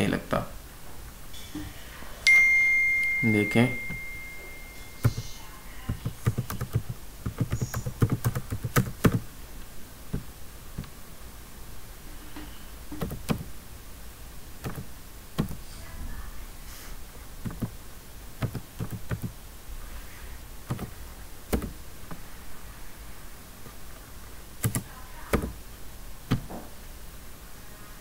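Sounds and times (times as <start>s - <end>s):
computer keyboard typing: 5.0s - 9.3s, 12.9s - 13.5s, 14.6s - 15.7s, 17.4s - 17.8s, 18.4s - 19.4s, 20.6s - 21.8s, 24.6s - 25.6s.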